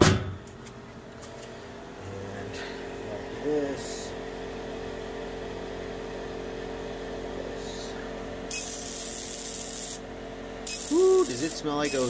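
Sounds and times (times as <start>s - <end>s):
laser cutter humming: 8.5s - 12.0s.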